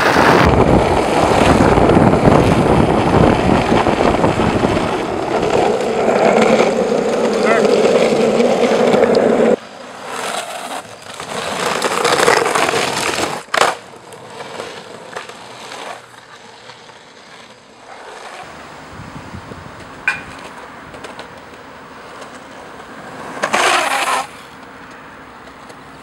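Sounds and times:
longboard wheels rolling on asphalt: 0:00.0 - 0:26.0.

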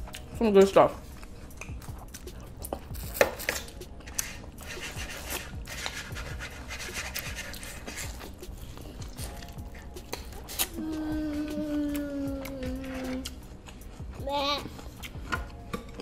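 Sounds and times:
corn on the cob being chewed: 0:07.0 - 0:14.1.

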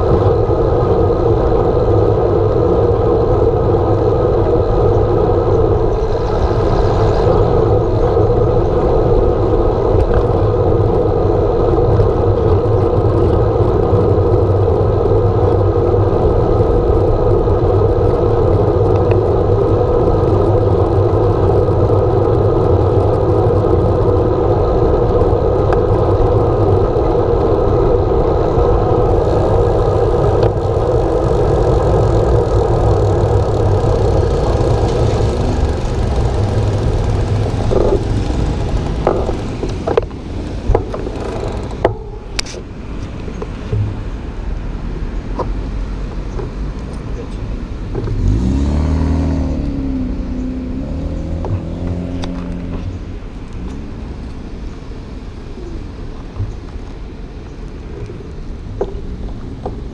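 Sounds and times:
bicycle road rumble: 0:00.0 - 0:59.9
wind on camera microphone: 0:00.0 - 0:59.9.

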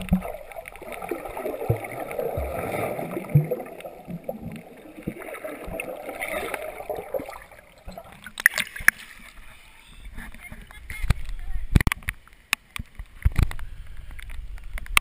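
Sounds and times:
underwater gurgling rush: 0:00.0 - 0:09.4.

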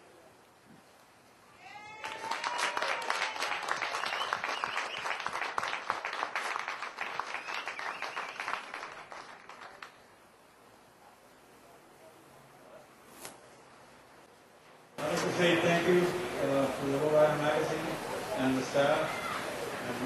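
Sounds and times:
audience applauding: 0:01.9 - 0:10.0.

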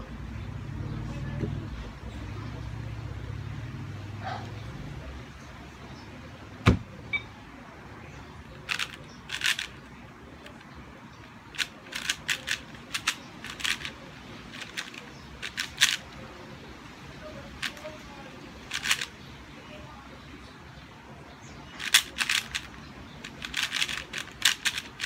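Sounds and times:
sharp knock: 0:06.6 - 0:06.9
speed cube plastic clicks: 0:08.7 - 0:09.8, 0:11.5 - 0:16.0, 0:18.7 - 0:19.1, 0:21.8 - 0:25.0.

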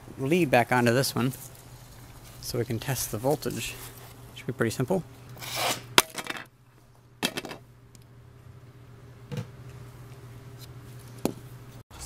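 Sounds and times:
short scrapes: 0:05.4 - 0:05.9.

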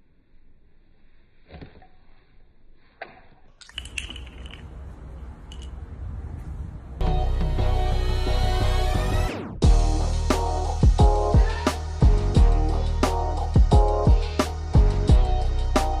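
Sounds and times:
loud music: 0:07.0 - 0:16.0.

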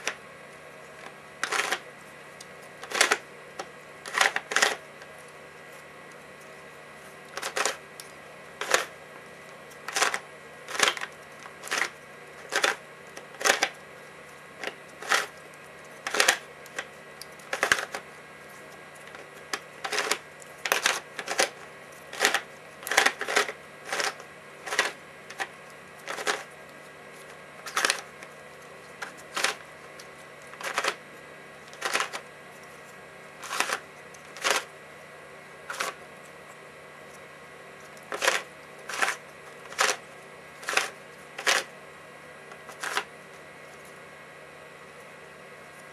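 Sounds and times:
plastic puzzle clacks: 0:01.4 - 0:01.8, 0:02.8 - 0:03.2, 0:09.9 - 0:12.8, 0:13.4 - 0:13.8, 0:16.0 - 0:16.9, 0:17.5 - 0:18.0, 0:19.1 - 0:26.5, 0:30.6 - 0:31.0, 0:31.7 - 0:32.2, 0:34.4 - 0:34.7, 0:38.1 - 0:40.0, 0:40.6 - 0:41.7.

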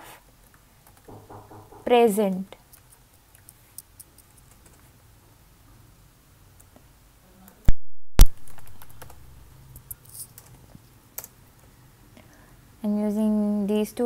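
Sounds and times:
computer keyboard typing: 0:08.3 - 0:09.3.

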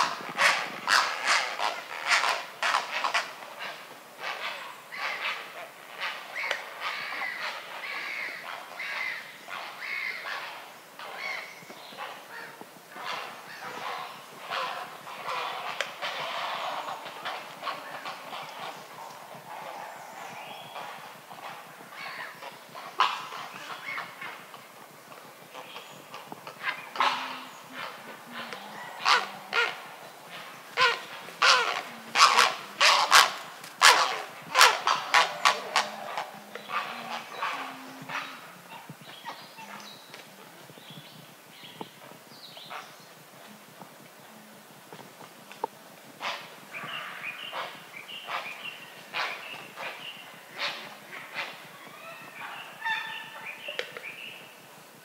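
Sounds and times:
herons harsh barking calls: 0:00.0 - 0:03.2, 0:25.5 - 0:38.6
herons croaking: 0:00.0 - 0:40.9, 0:45.5 - 0:54.6.

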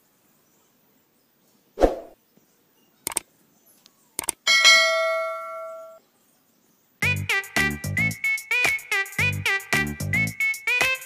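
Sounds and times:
short swoosh: 0:01.8 - 0:02.2
mouse clicks: 0:04.2 - 0:04.4
bright bell chime: 0:04.5 - 0:06.0.

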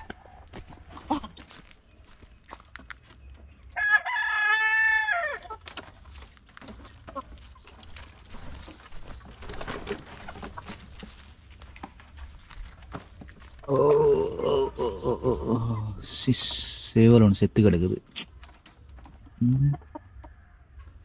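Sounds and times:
chicken clucking: 0:00.0 - 0:16.9, 0:18.1 - 0:21.0
rooster crowing: 0:03.8 - 0:05.4.

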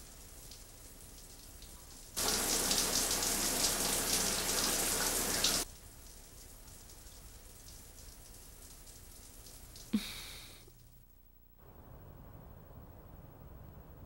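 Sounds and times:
shower spray running: 0:00.0 - 0:10.9
faint steady hiss: 0:00.0 - 0:14.0.

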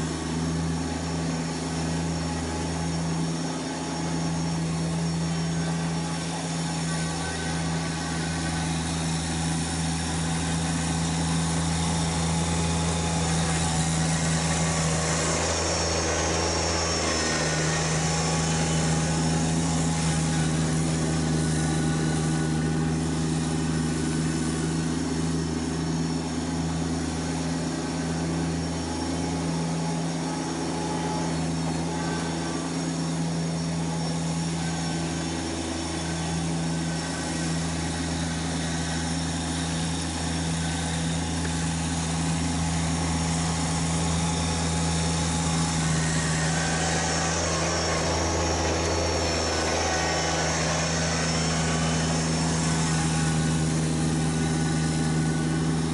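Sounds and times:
diesel tractor engine droning: 0:00.0 - 0:55.9.

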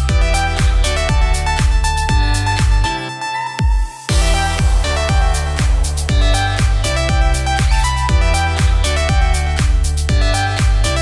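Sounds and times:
pounding kick drum: 0:00.0 - 0:03.0, 0:03.6 - 0:11.0
electronic dance music: 0:00.0 - 0:11.0
held high synth note: 0:02.9 - 0:09.2.

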